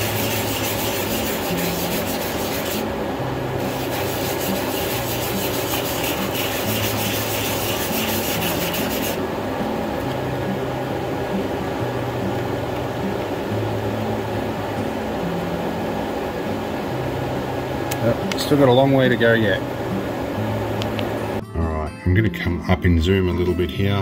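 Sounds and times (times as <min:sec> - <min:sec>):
sanding by hand on sandpaper: 0:00.0 - 0:02.9, 0:03.6 - 0:09.2.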